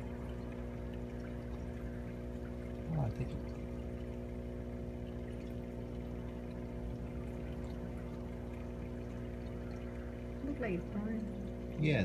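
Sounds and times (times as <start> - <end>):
pump hum: 0.0 - 12.0
water circulating in tank: 0.0 - 12.0.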